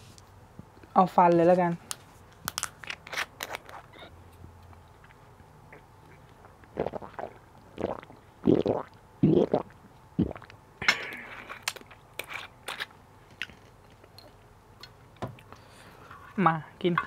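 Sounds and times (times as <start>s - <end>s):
person gulping a drink: 5.0s - 12.5s.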